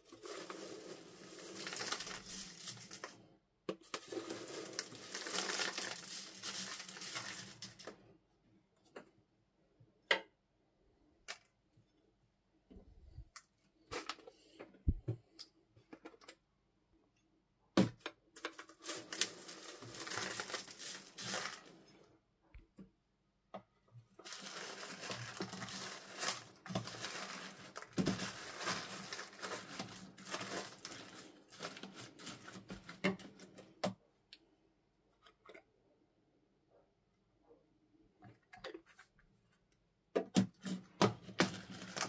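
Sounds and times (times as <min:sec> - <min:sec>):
plastic pieces crackling in slime: 0:00.0 - 0:03.2, 0:03.8 - 0:07.9, 0:18.4 - 0:21.8, 0:24.2 - 0:33.6, 0:40.5 - 0:42.0.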